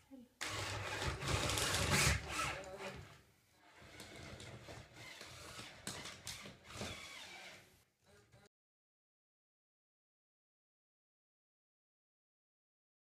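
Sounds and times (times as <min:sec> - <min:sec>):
cordless drill driving screws: 0:00.4 - 0:07.7.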